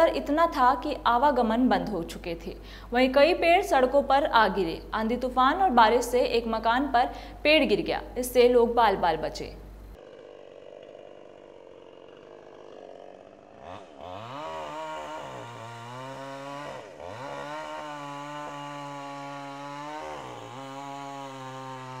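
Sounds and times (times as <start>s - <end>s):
chainsaw cutting: 9.9s - 22.0s.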